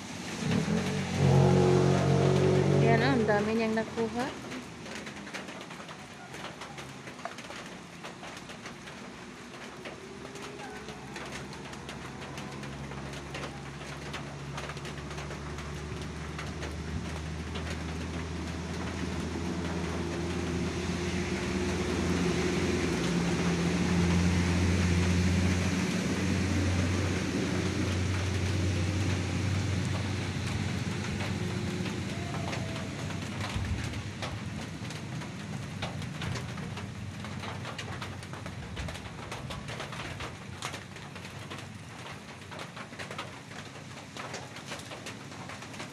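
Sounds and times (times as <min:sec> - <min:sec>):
motor engine passing by: 0:00.0 - 0:05.8, 0:10.1 - 0:38.4
rustles and clicks: 0:27.0 - 0:45.9.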